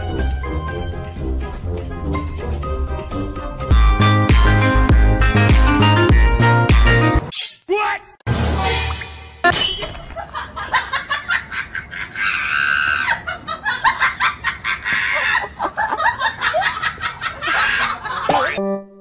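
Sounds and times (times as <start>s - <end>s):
people laughing: 10.2s - 18.6s
shrill cry: 12.2s - 13.2s.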